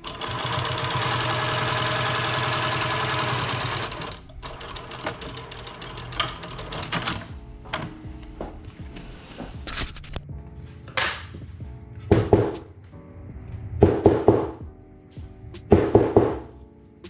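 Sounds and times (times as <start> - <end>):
sewing machine running fast: 0.0 - 7.2.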